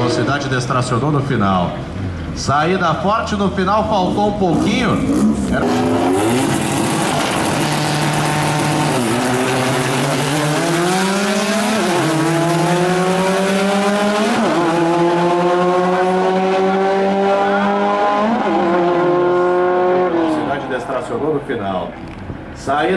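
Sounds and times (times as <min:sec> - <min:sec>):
race car engine at full throttle: 0:00.0 - 0:22.9.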